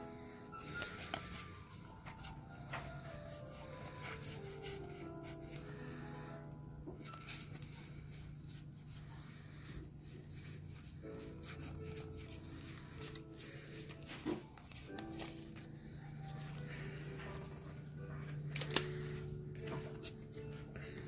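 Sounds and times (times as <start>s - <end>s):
cards clicking and sliding: 0.6s - 3.0s, 11.4s - 16.7s, 18.3s - 21.0s
card snap: 18.5s - 19.0s.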